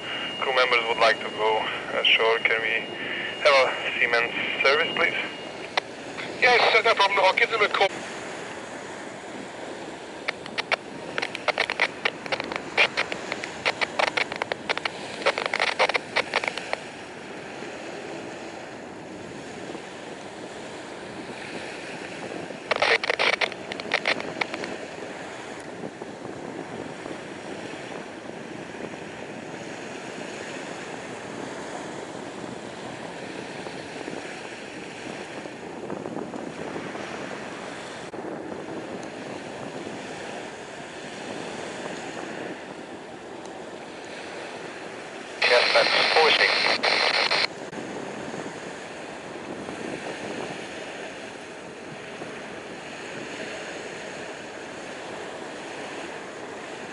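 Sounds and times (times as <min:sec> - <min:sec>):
water: 0:00.0 - 0:56.9
wind: 0:00.0 - 0:56.9
rapid crackling bursts: 0:10.2 - 0:16.8, 0:22.7 - 0:24.7, 0:45.4 - 0:47.5.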